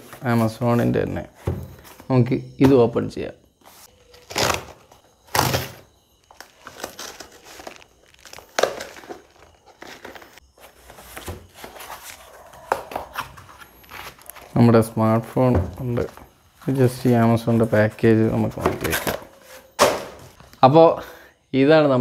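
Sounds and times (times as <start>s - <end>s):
packing tape tearing: 4.2s - 10.2s.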